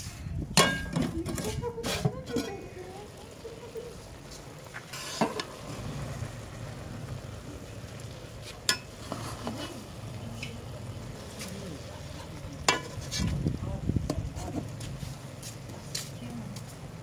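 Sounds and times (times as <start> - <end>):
ladle stirring rice in a pot: 0.0 - 17.0
steady low rumble: 5.5 - 17.0
ladle clinking against pot: 12.6 - 13.2.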